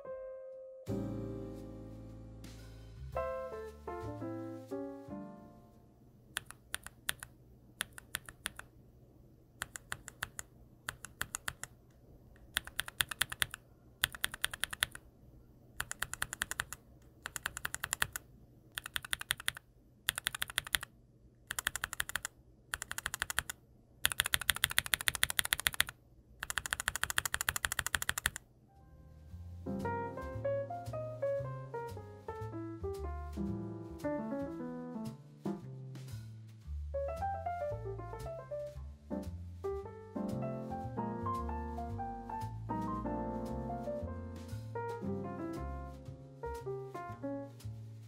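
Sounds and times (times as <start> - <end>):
mechanical keyboard switch clacking: 6.4 - 8.7, 9.6 - 11.7, 12.4 - 15.0, 15.8 - 18.2, 18.8 - 20.9, 21.5 - 28.4.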